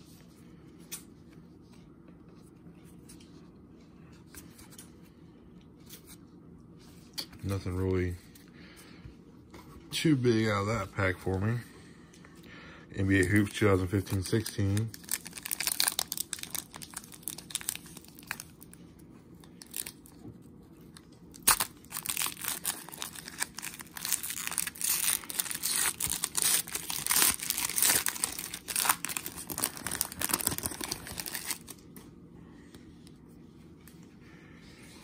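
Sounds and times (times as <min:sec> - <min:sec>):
foil wrapper crinkling and tearing: 0:13.0 - 0:18.8, 0:19.4 - 0:20.2, 0:21.0 - 0:31.8.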